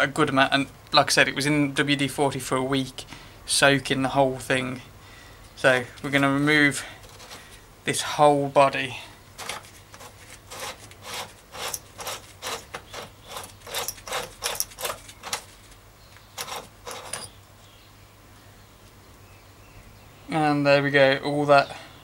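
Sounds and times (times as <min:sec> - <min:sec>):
gritty scrapes of metal threads: 0:06.0 - 0:07.6, 0:09.4 - 0:15.8, 0:16.4 - 0:17.4.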